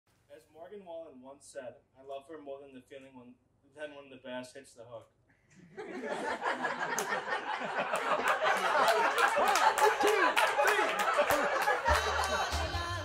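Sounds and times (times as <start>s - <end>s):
crowd talking and laughing: 5.8s - 13.0s.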